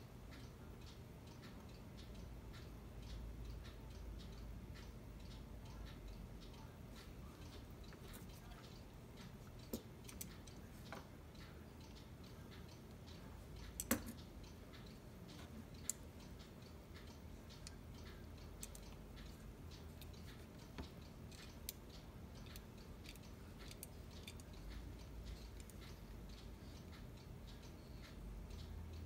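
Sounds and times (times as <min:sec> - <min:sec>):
small clicks and taps of hand work: 0:06.9 - 0:11.1, 0:13.6 - 0:16.0, 0:17.5 - 0:26.1.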